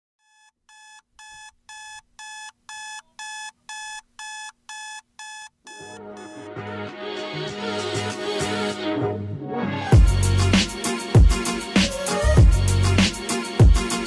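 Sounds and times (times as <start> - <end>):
electronic alarm beeping: 0.2 - 6.5
background music: 5.8 - 14.0.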